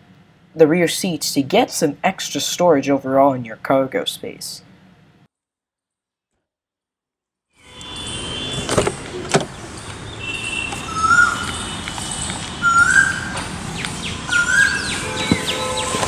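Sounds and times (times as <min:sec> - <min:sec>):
high bird chirps: 0:09.6 - 0:16.0
bird whistled call: 0:10.1 - 0:15.9.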